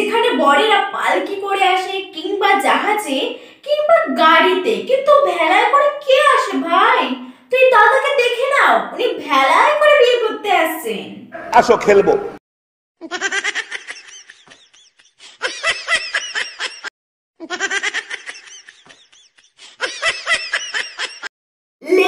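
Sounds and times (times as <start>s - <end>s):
recorded laughter: 13.0s - 21.3s.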